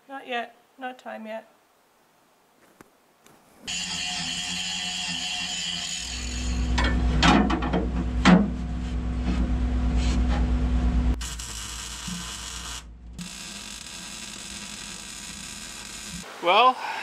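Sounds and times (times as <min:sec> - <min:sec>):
steady low hum: 0:06.1 - 0:16.2
even hiss: 0:14.2 - 0:17.0.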